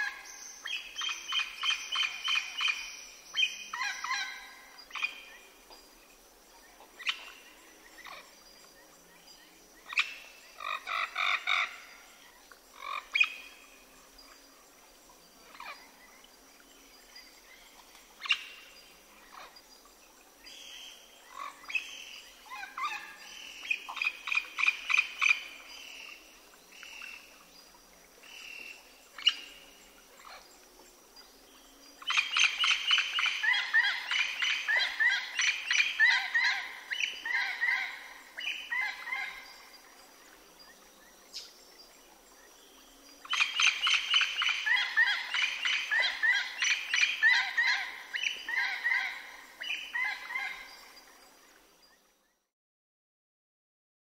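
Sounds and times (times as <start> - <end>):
parrots calling: 10.6 - 11.7, 33.4 - 38.0, 48.5 - 49.2.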